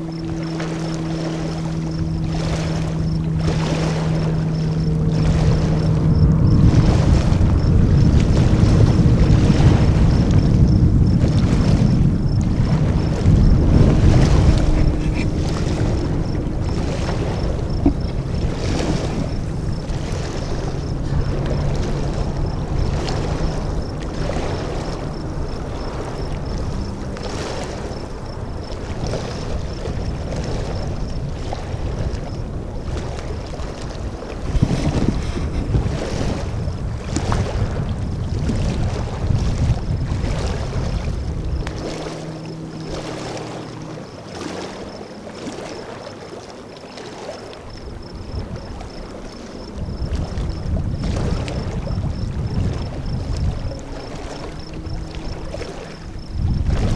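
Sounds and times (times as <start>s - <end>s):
water splashing and lapping: 0.0s - 56.9s
wind rumbling on microphone: 0.0s - 56.9s.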